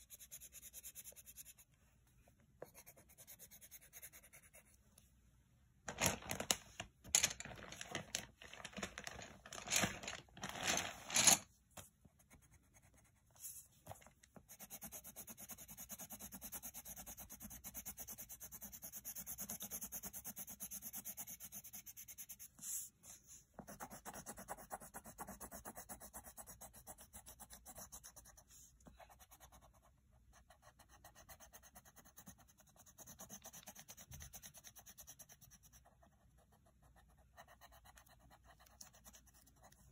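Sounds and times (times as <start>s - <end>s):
pencil scribbling on paper: 0.0s - 4.8s, 12.1s - 39.9s
paper rustling and scraping: 5.9s - 11.5s.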